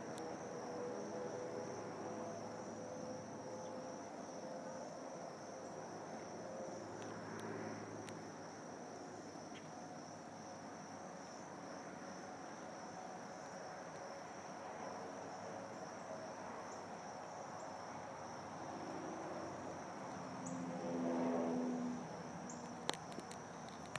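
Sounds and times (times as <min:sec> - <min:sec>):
crickets chirping: 0:00.0 - 0:23.9
wheels rumbling on asphalt: 0:17.9 - 0:23.9.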